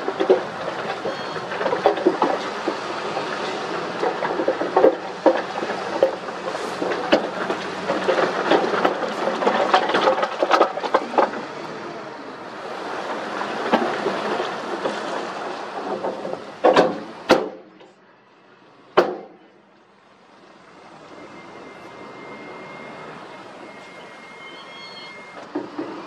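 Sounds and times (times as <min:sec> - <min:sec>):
rocks and earth sliding from truck: 0:00.0 - 0:17.3.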